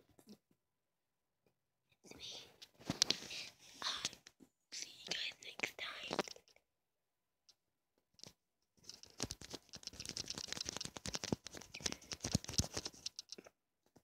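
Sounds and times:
small scratches and clicks: 2.6 - 3.4, 4.0 - 6.6, 8.2 - 14.0.

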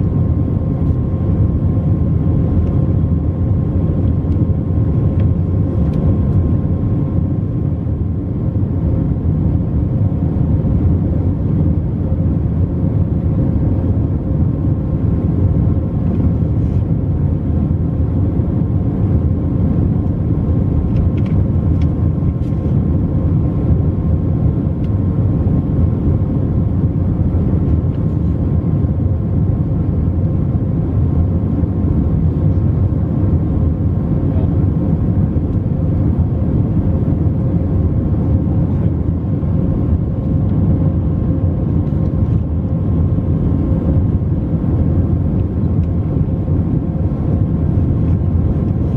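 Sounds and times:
airplane cabin engine rumble: 0.0 - 48.9.

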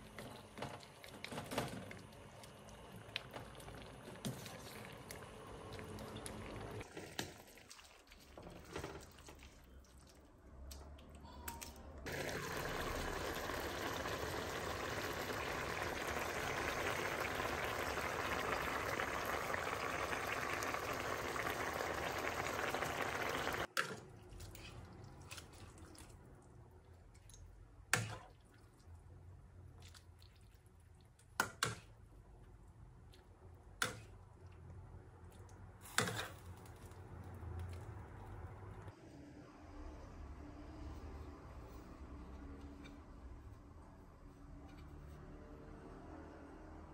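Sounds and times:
broth bubbling in a pan: 12.0 - 23.7.

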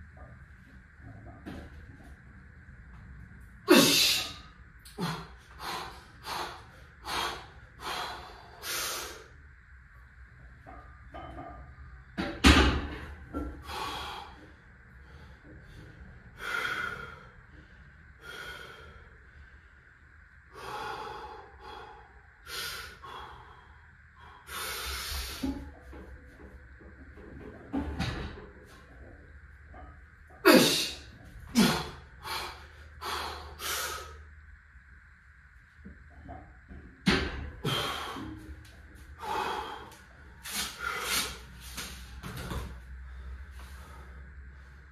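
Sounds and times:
weightlifter's sharp breaths: 39.2 - 42.1.

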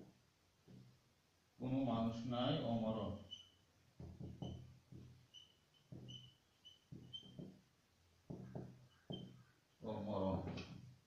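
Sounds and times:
marker knocking on whiteboard: 0.0 - 1.0, 4.0 - 9.6
marker tip squeaks: 3.2 - 7.6, 8.4 - 9.5.

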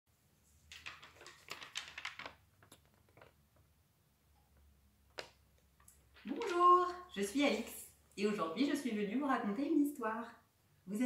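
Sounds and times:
paper rustling: 0.5 - 3.4, 6.2 - 7.8.

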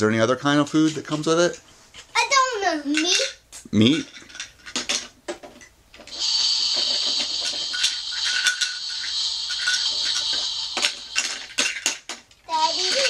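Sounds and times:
toy stove electronic sizzling: 6.0 - 13.0.

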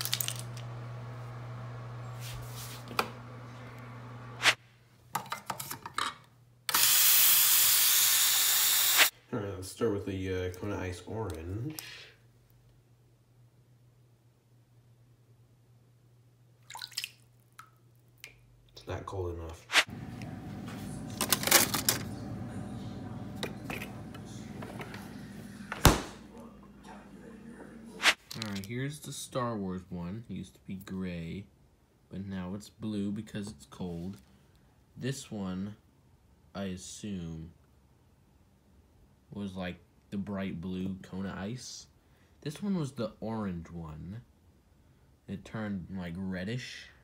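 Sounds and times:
plastic spoons clattering: 0.0 - 0.6
refrigerator hum: 0.0 - 4.4, 19.9 - 28.0.

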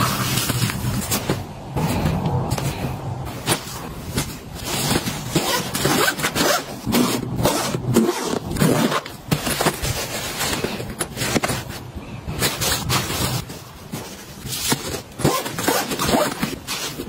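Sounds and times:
zipper rasping shut: 3.5 - 11.4, 14.8 - 17.0.

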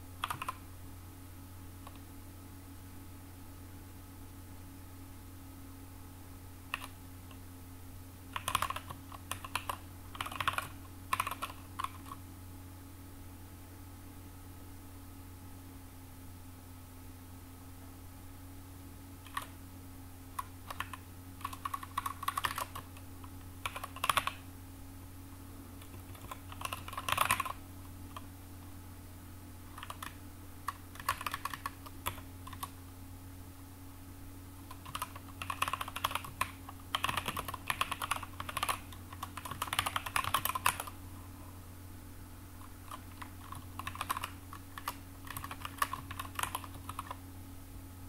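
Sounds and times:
steady low hum: 0.0 - 48.0
typing on computer keyboard: 0.2 - 0.6, 6.7 - 7.0, 8.3 - 12.2, 19.2 - 19.6, 20.4 - 24.4, 25.8 - 28.3, 29.7 - 32.7, 34.6 - 41.0, 42.8 - 47.2.

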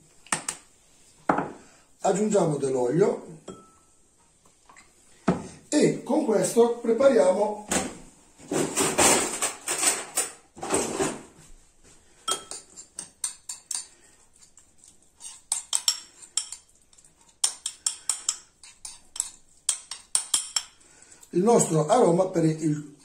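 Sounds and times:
spoon clinking against bowl: 3.5 - 3.9, 12.3 - 14.0, 15.2 - 16.8, 17.4 - 20.8
metal spoon scraping ceramic bowl: 12.3 - 20.8.

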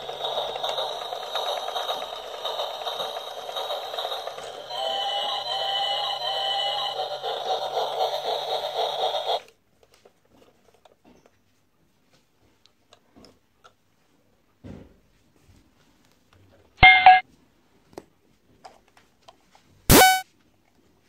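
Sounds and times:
plastic toy gears clattering: 0.0 - 9.4
electronic beeping tune: 16.8 - 17.2, 19.9 - 20.2.

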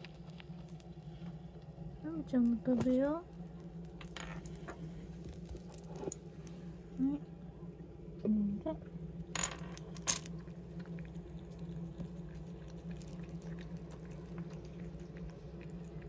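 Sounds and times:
cat chewing and lapping: 0.0 - 1.8, 10.3 - 16.0
steady low hum: 0.0 - 16.0.

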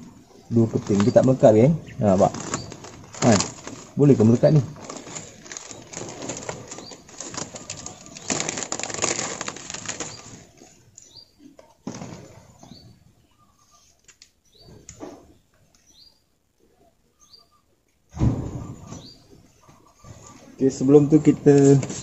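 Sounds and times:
plastic film crinkling and flapping: 0.5 - 10.8.

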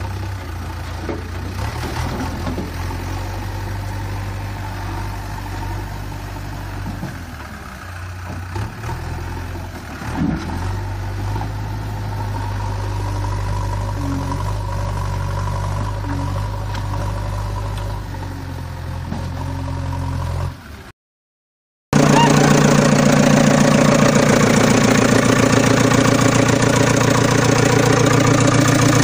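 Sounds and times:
engine idling with fast chug: 22.0 - 29.0
engine running steadily: 22.0 - 29.0.

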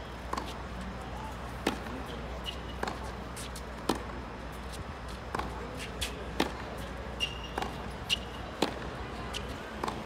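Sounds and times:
tennis ball struck by racquets: 1.6 - 2.0, 3.8 - 4.2, 5.3 - 5.6, 6.3 - 6.6, 7.2 - 8.9, 9.8 - 10.0
shoe squeaks on court: 7.1 - 8.4
ball bouncing on hard court: 7.3 - 10.0.

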